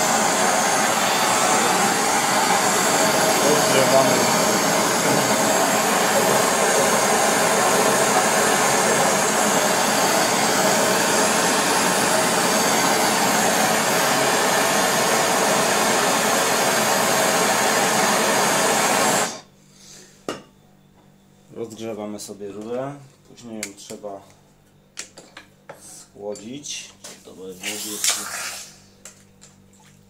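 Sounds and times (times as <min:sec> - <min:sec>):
gas torch flame hissing: 0:00.0 - 0:19.4, 0:27.6 - 0:28.9.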